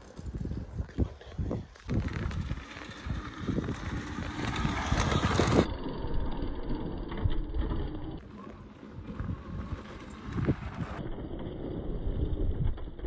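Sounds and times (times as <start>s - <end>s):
wind buffeting microphone: 0.0s - 5.7s, 8.8s - 11.0s
motorbike tyre noise: 0.0s - 13.0s.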